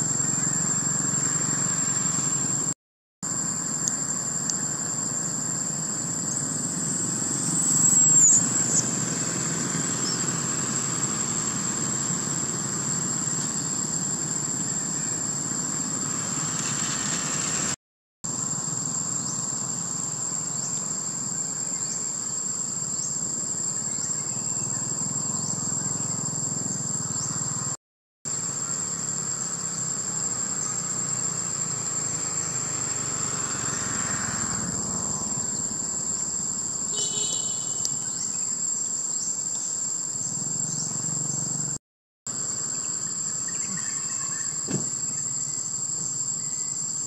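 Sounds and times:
insects droning: 0:00.0 - 0:47.0
low outdoor background: 0:00.0 - 0:47.0
short sliding squeak: 0:07.1 - 0:08.8.

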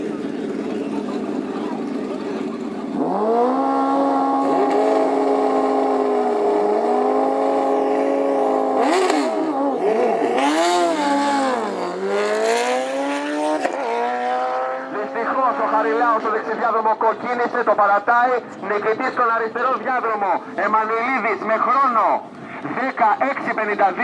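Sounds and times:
motorcycles revving and accelerating: 0:00.0 - 0:17.6.

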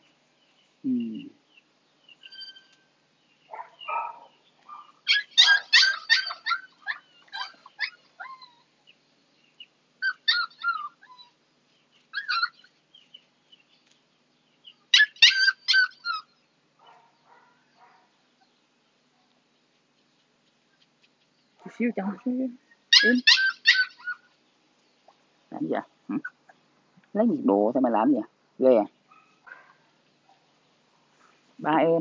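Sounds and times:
puppy yelping and whining: 0:02.2 - 0:02.8, 0:04.7 - 0:08.8, 0:10.0 - 0:11.4, 0:12.1 - 0:12.7, 0:14.9 - 0:16.3, 0:22.9 - 0:24.3.

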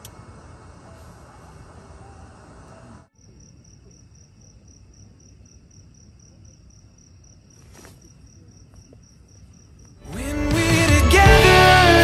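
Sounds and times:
cricket chirping: 0:03.1 - 0:10.1
soft noise: 0:07.4 - 0:09.8.

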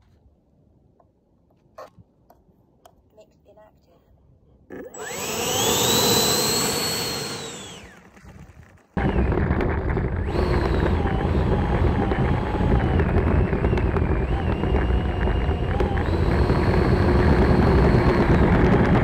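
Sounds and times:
electric ducted fan whining: 0:04.8 - 0:08.0, 0:09.0 - 0:19.0.

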